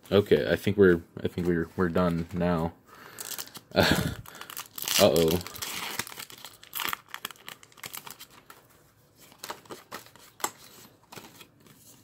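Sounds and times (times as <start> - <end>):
foil wrapper crinkling: 3.1 - 8.6.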